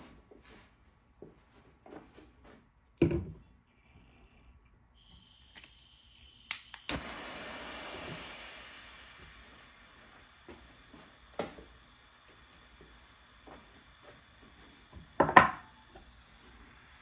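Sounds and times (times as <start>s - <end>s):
gas hissing: 5.0s - 17.0s
torch flame rushing: 5.1s - 17.0s
torch igniter clicks: 5.2s - 7.4s, 10.5s - 15.2s.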